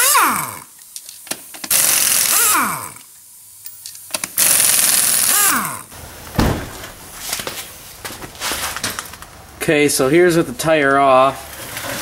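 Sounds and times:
pneumatic impact wrench spinning: 0.0s - 3.2s, 4.1s - 5.9s
thump: 6.3s - 7.0s.

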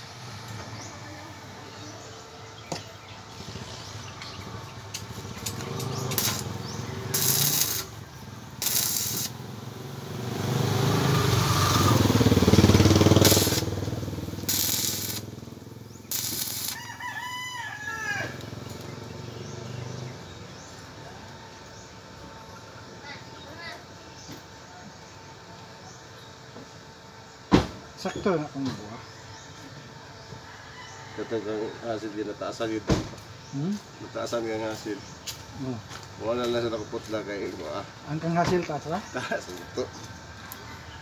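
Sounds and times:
welding arc crackling: 4.2s - 17.1s
rooster crowing: 16.1s - 18.7s, 30.4s - 32.2s.

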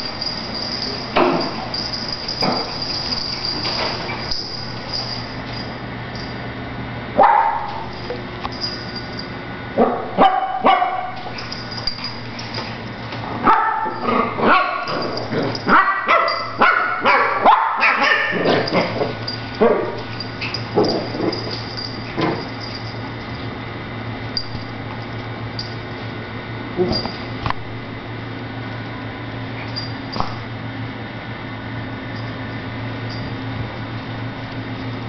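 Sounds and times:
puppies barking: 7.2s - 8.0s, 9.8s - 12.3s, 13.4s - 22.9s.

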